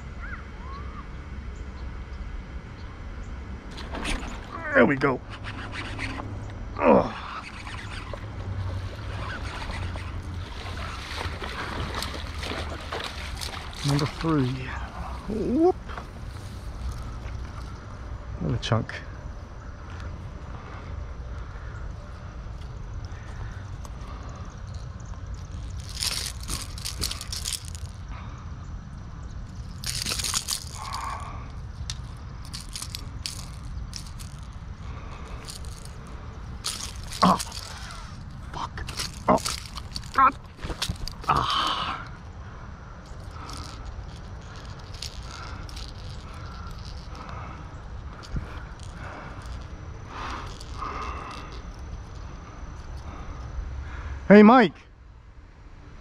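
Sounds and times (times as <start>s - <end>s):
steady low rumble: 0.0s - 56.0s
grass rustling and crunching: 7.4s - 17.8s, 24.7s - 28.1s, 29.5s - 41.8s, 43.0s - 51.8s
fish splashing at water surface: 8.9s - 15.2s.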